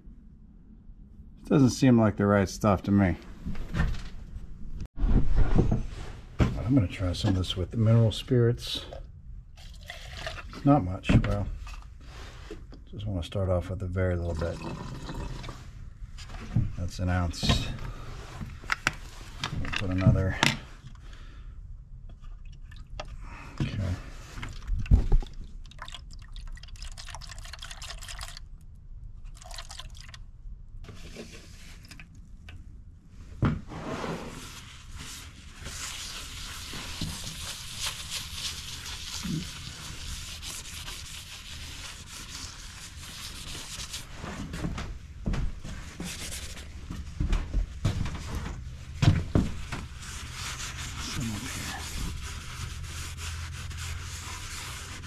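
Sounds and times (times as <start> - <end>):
liquid dripping and sloshing in cup: 9.6 - 10.6, 22.2 - 23.2, 24.4 - 30.2
rag rubbing on plastic: 33.8 - 44.3, 49.9 - 55.0.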